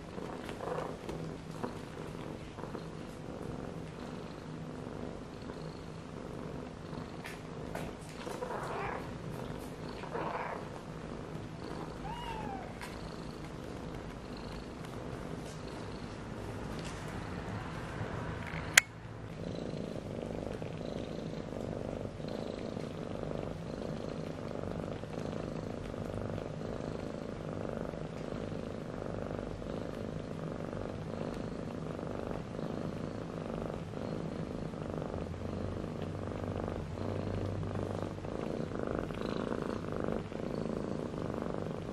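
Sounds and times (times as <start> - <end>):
cat purring: 0.0 - 41.9
faint kitten squeaks: 11.9 - 13.0.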